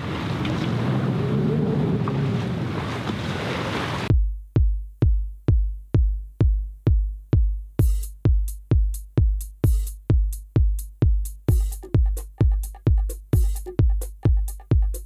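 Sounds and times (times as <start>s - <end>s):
sea sounds: 0.0s - 4.1s
wind: 0.0s - 4.1s
heavy kick drum: 4.1s - 15.0s
electronic dance music: 7.8s - 15.0s
hi-hat: 7.8s - 15.0s.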